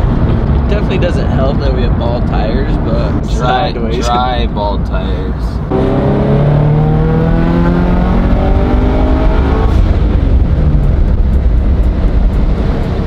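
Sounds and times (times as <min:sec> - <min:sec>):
car engine revving hard: 0:05.7 - 0:10.6.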